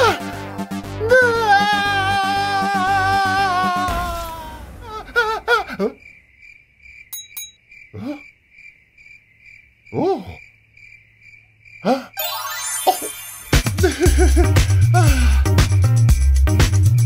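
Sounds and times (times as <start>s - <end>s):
cricket chirping: 5.5s - 12.4s.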